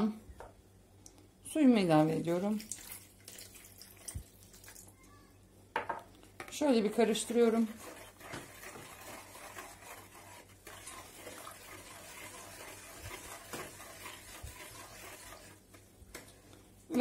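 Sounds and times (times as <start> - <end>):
metal spoon stirring in a bowl: 6.4 - 16.4.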